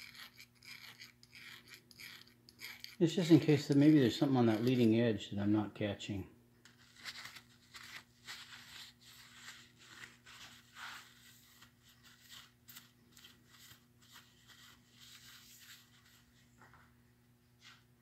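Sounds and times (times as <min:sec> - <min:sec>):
scratching and rubbing on metal: 0:00.0 - 0:04.9, 0:06.8 - 0:16.2.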